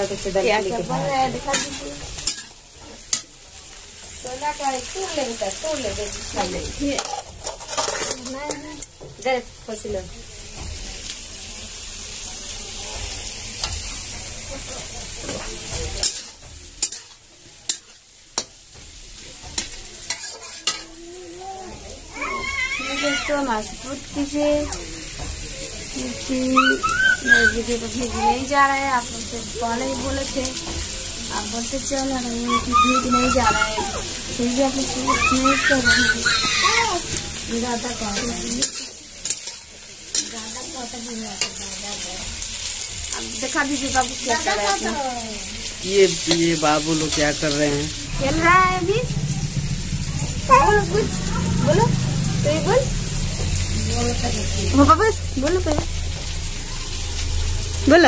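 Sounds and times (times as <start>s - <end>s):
food sizzling: 0.0s - 58.0s
metal spatula clinking on pan: 16.0s - 18.6s, 19.6s - 20.9s, 38.2s - 40.3s.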